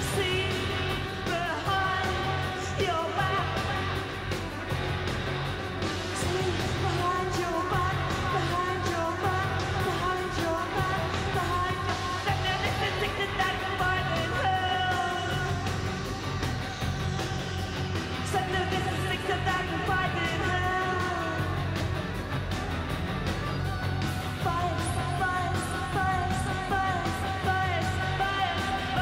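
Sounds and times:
person singing: 0.0s - 4.6s, 6.0s - 16.4s, 17.2s - 21.8s, 24.1s - 29.0s
bass: 0.0s - 29.0s
drum beat with cymbals: 0.0s - 29.0s.

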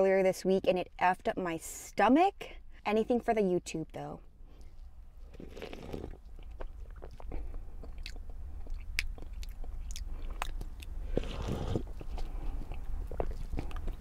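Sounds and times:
person sipping and slurping: 5.3s - 6.2s, 10.2s - 14.0s.

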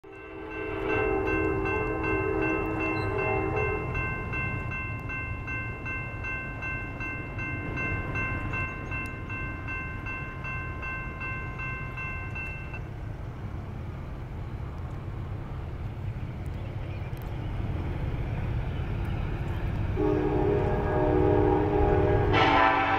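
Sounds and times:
crossing bell ringing: 0.0s - 12.9s, 20.0s - 22.9s
locomotive horn blast: 0.1s - 4.0s, 20.0s - 22.9s.

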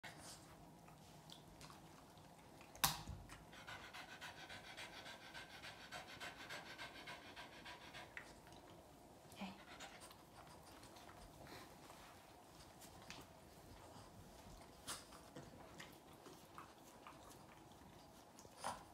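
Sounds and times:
dog panting: 3.2s - 8.8s, 9.4s - 18.9s.

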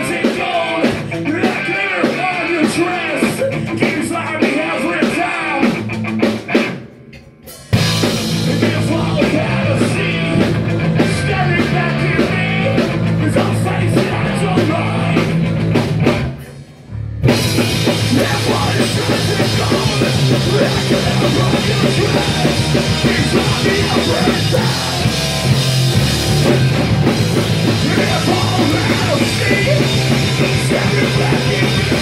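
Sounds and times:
person singing: 0.0s - 5.8s, 8.4s - 15.3s, 18.0s - 25.1s, 27.7s - 32.0s
punk rock band playing: 0.0s - 32.0s.

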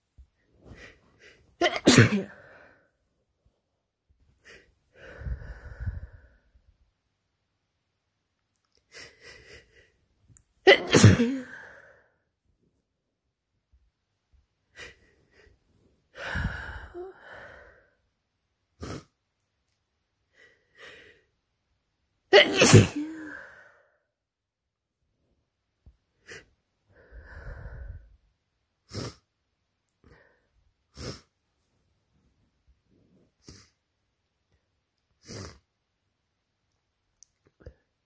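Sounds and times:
person sneezing: 1.2s - 2.6s, 10.7s - 11.8s, 22.3s - 23.5s
breathy nasal sounds: 18.8s - 19.2s, 28.8s - 29.3s, 30.0s - 31.4s, 33.4s - 33.8s, 35.2s - 35.7s
person sniffing: 18.8s - 19.2s, 28.9s - 29.3s, 30.9s - 31.4s, 33.3s - 33.8s, 35.2s - 35.6s.

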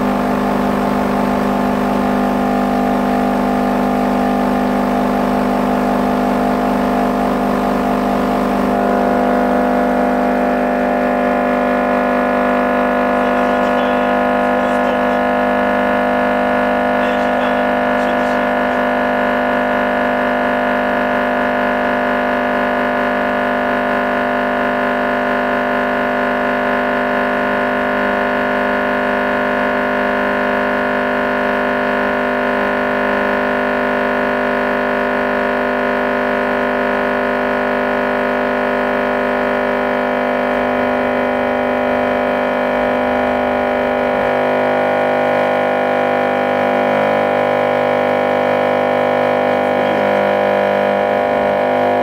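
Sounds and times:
subwoofer buzzing test tone: 0.0s - 52.0s.

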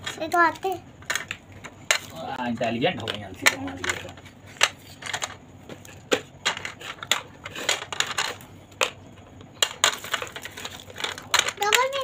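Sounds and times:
crayons clicking on plastic box: 3.0s - 12.0s.

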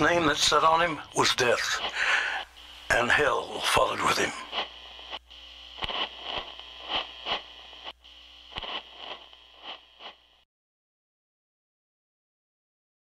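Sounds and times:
radio static: 0.0s - 10.4s
low hum: 0.9s - 10.4s
crackling pops: 3.6s - 10.4s.

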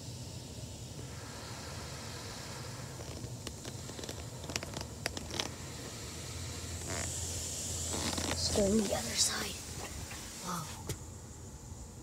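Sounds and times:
steady low hum: 0.0s - 12.0s
crackling ticks: 3.0s - 5.6s.

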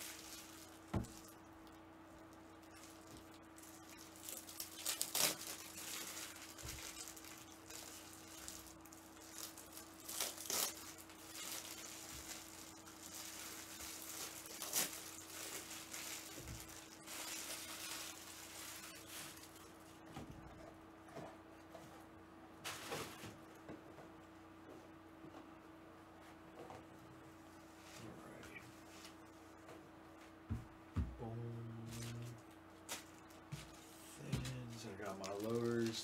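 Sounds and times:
sharp plastic crackles: 0.0s - 19.8s, 34.3s - 36.0s
plastic rustling and crinkling: 0.0s - 22.0s, 22.6s - 24.1s, 31.9s - 36.0s.

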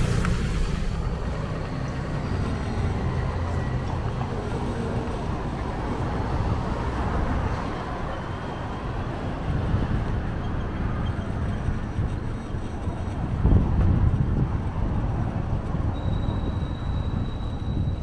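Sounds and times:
city traffic rumble: 0.0s - 18.0s
wind on microphone: 8.8s - 18.0s.

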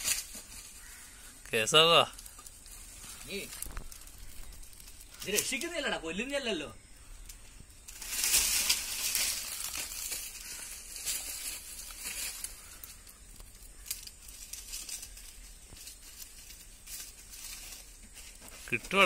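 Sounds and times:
dry leaves rustling and crackling: 0.0s - 19.0s.

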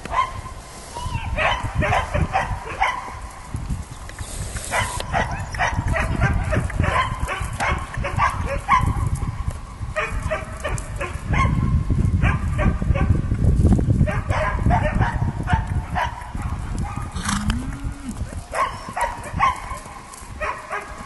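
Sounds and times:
dog barking: 0.1s - 0.4s, 1.2s - 3.2s, 4.7s - 9.0s, 10.0s - 13.2s, 14.0s - 17.2s, 18.5s - 21.0s
low rumble: 17.1s - 18.4s.

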